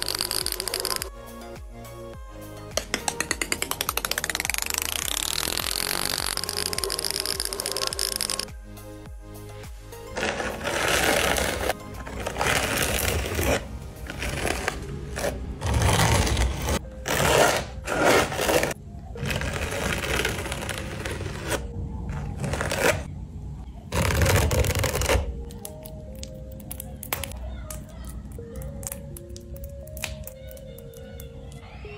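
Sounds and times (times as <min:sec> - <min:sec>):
palette knife scraping paint: 0:10.1 - 0:21.7.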